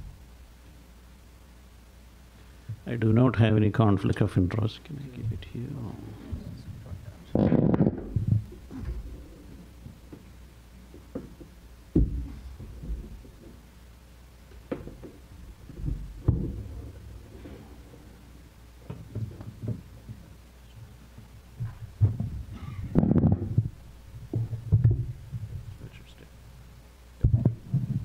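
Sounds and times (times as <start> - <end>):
thumps and knocks on wooden lectern: 6.3 - 10.3, 10.9 - 13.6, 14.5 - 17.9, 18.8 - 20.4, 21.2 - 25.7, 27.2 - 28.0.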